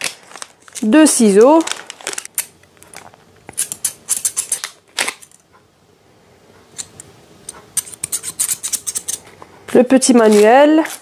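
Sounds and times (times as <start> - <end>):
plastic sleeve crinkling: 0.0 - 5.3, 9.2 - 11.0.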